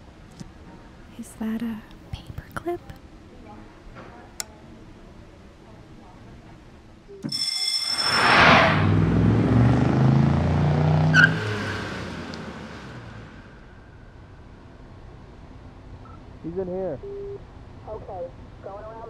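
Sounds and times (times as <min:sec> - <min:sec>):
police car driving past: 0:07.9 - 0:14.4.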